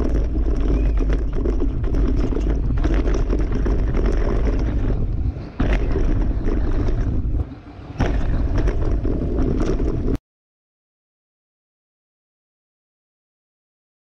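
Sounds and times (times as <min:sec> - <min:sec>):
bike rattling knocks: 0:00.0 - 0:10.2
bike tyres rumbling over gravel: 0:00.0 - 0:10.2
wind buffeting microphone: 0:00.0 - 0:10.2.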